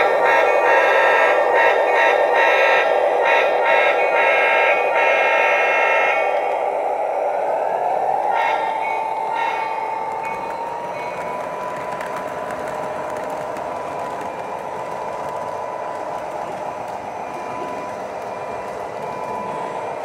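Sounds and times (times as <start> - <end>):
wheels rolling on rails: 9.3 - 20.0.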